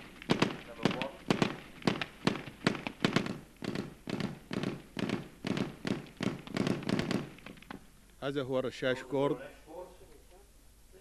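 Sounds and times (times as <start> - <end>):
heavy machine gun firing: 0.0 - 7.6.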